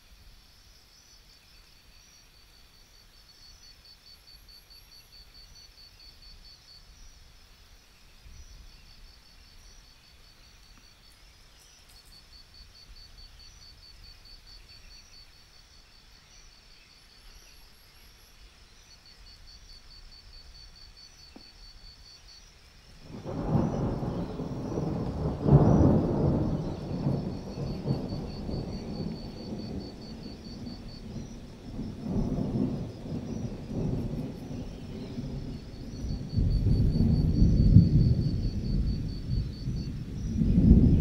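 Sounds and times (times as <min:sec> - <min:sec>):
crickets chirping: 0:00.0 - 0:41.0
thunder rumbling: 0:23.0 - 0:41.0.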